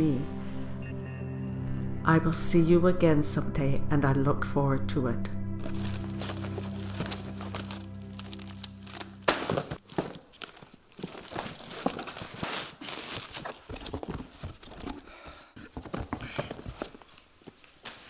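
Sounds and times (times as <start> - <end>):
low music drone: 0.0 - 9.8
sharp crackle: 5.6 - 13.4
cardboard and paper rustling: 5.6 - 18.0.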